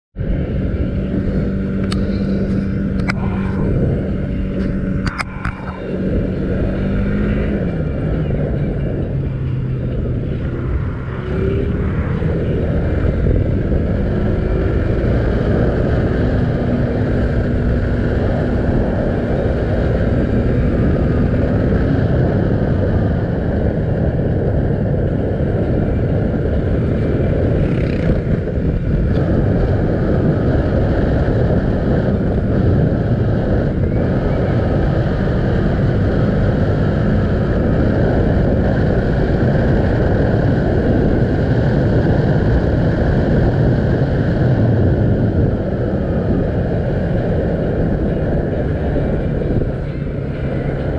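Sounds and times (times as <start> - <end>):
motorcycle engine running: 0.2 - 50.9
wind rushing over microphone: 0.2 - 50.9.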